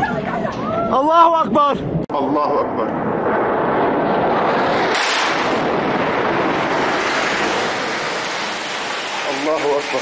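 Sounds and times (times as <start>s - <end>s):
explosion roar: 2.2s - 10.0s.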